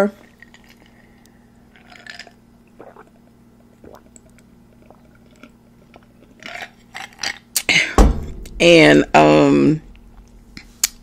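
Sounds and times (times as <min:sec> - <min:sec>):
faint low hum: 0:00.0 - 0:11.0
person gulping a drink: 0:00.2 - 0:07.7.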